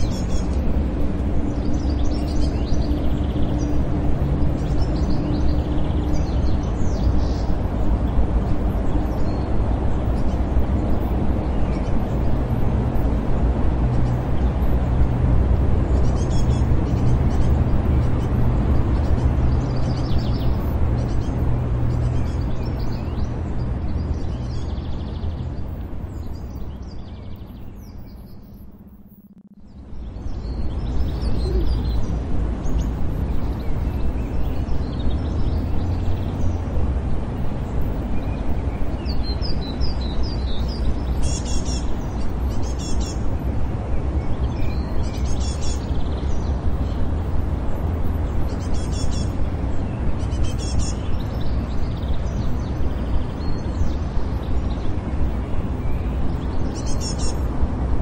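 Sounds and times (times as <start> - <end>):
birds chirping: 0.0 - 57.7
outdoor noise bed: 0.0 - 58.0
low pulsing tone: 28.4 - 37.6.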